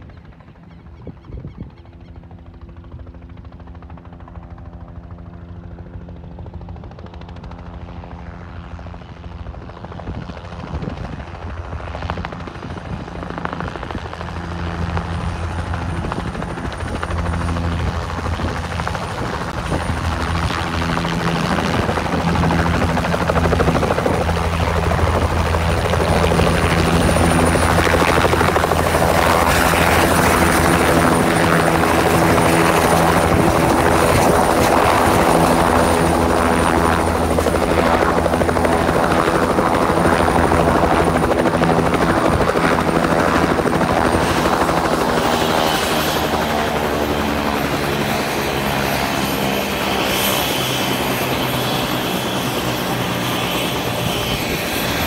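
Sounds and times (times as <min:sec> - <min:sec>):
helicopter rotor and turbine: 0:00.0 - 0:55.0.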